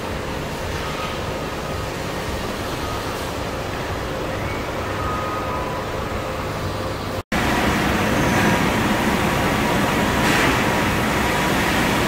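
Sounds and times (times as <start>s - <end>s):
factory machinery hum: 0.0s - 12.0s.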